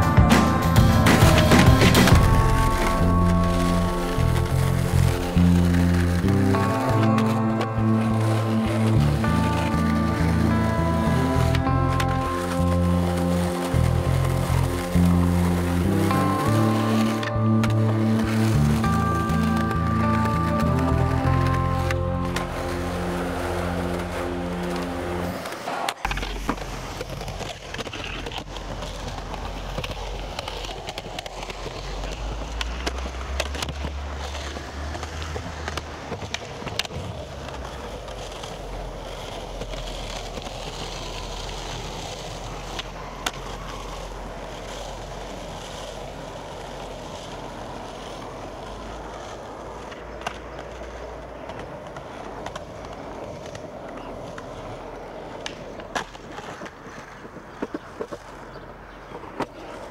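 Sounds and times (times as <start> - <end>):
skateboard clacks popping and landing: 0.0 - 3.5
skateboard wheels rolling on pavement: 0.0 - 59.9.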